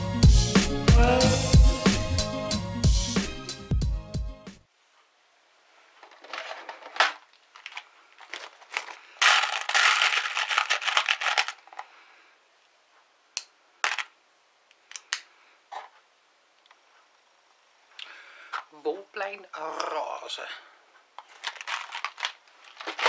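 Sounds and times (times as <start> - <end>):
rustling and crinkling: 5.7 - 12.1, 21.2 - 23.0.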